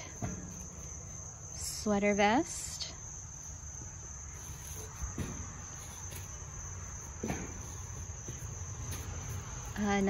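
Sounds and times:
crickets chirring: 0.0s - 10.0s
soft knocks: 7.2s - 9.2s.

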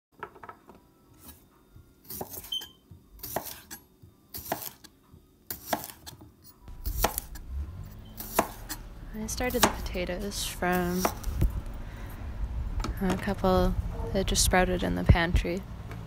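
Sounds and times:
high squeak: 2.4s - 2.8s
low rumble: 6.7s - 8.2s, 8.8s - 15.9s.

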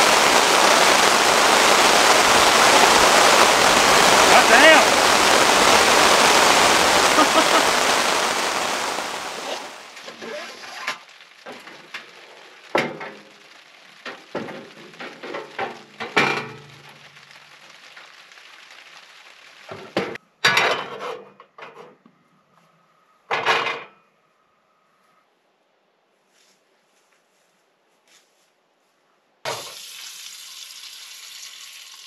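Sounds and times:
rain: 0.0s - 20.2s, 29.5s - 32.0s.

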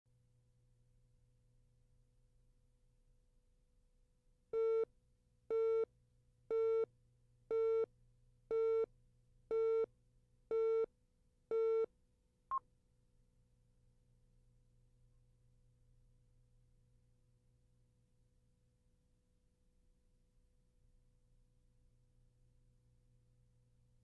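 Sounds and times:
faint steady hum: 13.0s - 24.0s.

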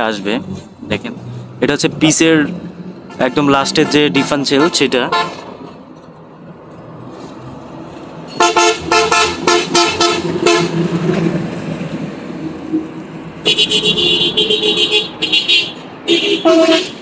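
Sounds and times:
vehicle passing with low rumble: 0.0s - 14.8s
higher-pitched horn: 8.3s - 10.8s, 13.4s - 17.0s
short car horn beeps: 13.5s - 17.0s.

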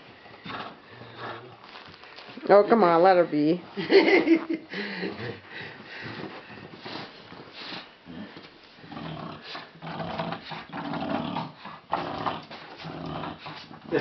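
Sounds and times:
dog growling: 0.4s - 1.9s, 8.1s - 14.0s.

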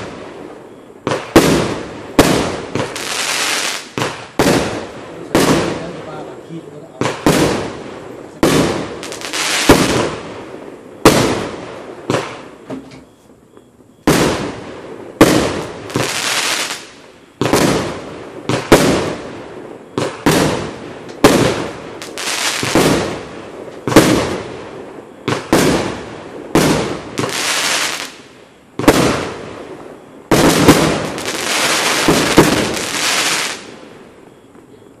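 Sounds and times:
firework bangs: 0.0s - 13.1s, 14.0s - 34.3s.

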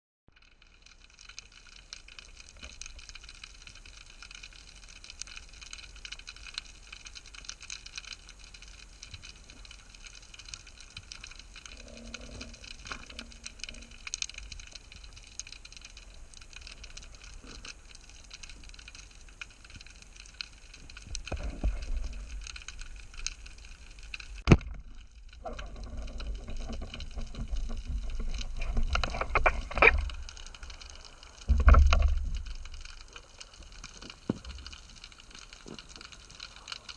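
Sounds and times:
underwater seabed crackling: 0.3s - 36.9s
sharp underwater crack: 24.3s - 33.1s.

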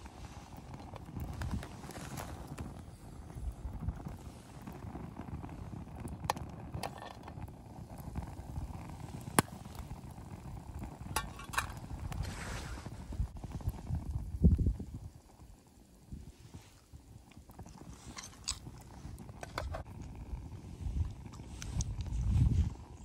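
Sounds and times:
gas stove rumble: 0.0s - 15.3s, 17.4s - 23.0s
popcorn popping: 4.8s - 12.2s, 17.3s - 20.3s.

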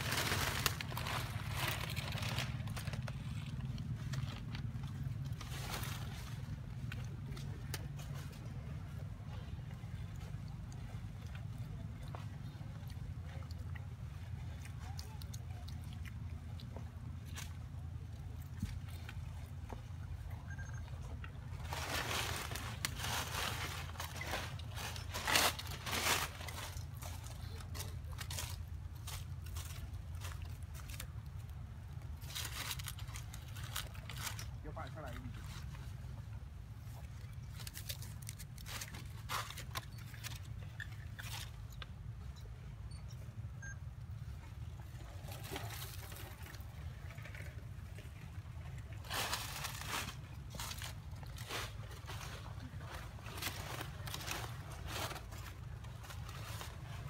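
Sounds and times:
dry leaves rustling and crunching: 0.0s - 8.4s, 21.5s - 36.1s, 36.9s - 42.2s, 49.0s - 57.0s
steady low rumble: 0.0s - 57.0s.

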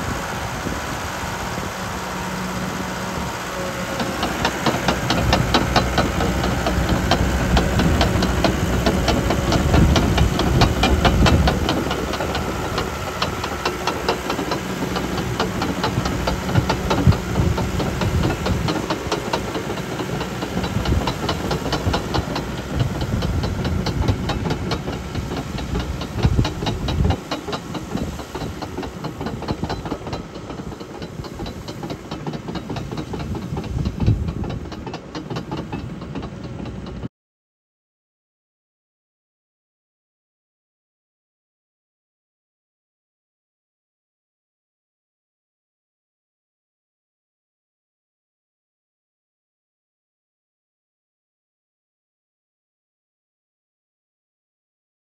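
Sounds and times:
diesel engine under load: 0.0s - 37.1s
steel tracks clattering: 0.0s - 37.1s.

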